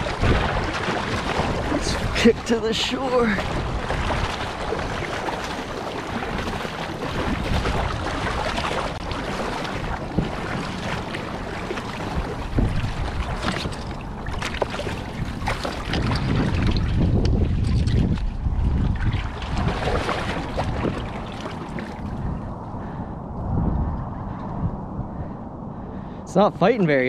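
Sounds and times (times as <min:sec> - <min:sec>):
water splashing and lapping: 0:00.0 - 0:23.2
wind buffeting microphone: 0:00.0 - 0:27.0.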